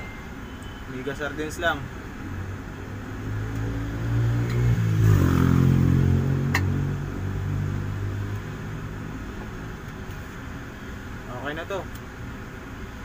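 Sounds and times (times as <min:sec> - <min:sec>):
vehicle engine revving: 0:02.3 - 0:09.3.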